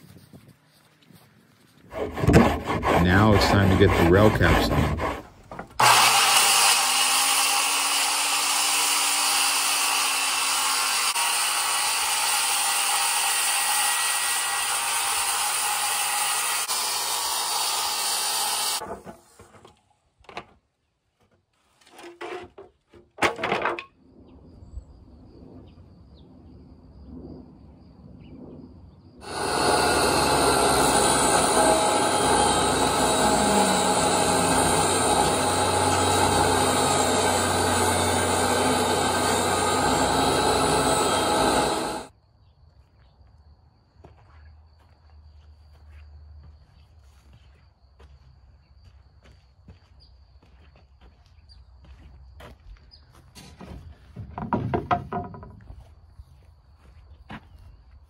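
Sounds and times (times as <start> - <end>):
table saw cutting wood: 1.9 - 19.1, 29.2 - 42.1
circular saw cutting wood: 1.9 - 19.5, 29.2 - 42.1
wood knocking: 2.1 - 3.0, 53.4 - 55.8.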